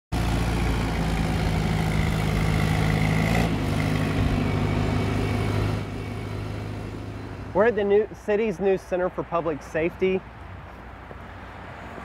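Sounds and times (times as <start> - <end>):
construction machine engine running: 0.1 - 9.5.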